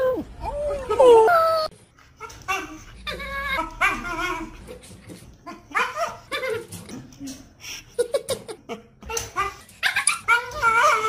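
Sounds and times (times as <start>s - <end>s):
husky whining and yowling: 9.1s - 11.0s.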